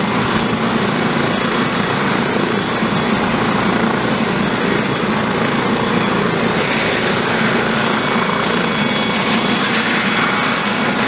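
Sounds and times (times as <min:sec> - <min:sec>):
helicopter turbine and rotor: 0:00.0 - 0:11.0.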